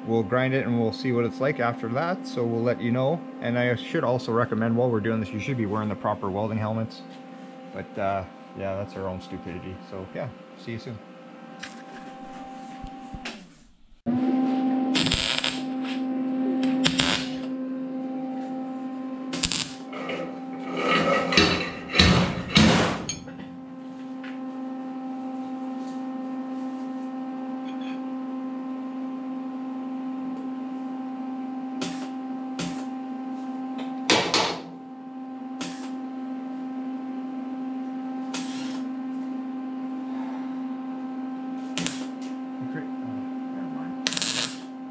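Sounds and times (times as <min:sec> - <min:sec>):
electrical hum: 0:00.0 - 0:44.9
welder crackling bursts: 0:14.9 - 0:15.8, 0:16.6 - 0:17.5, 0:19.3 - 0:19.9, 0:38.3 - 0:38.8, 0:41.7 - 0:42.2, 0:44.0 - 0:44.8.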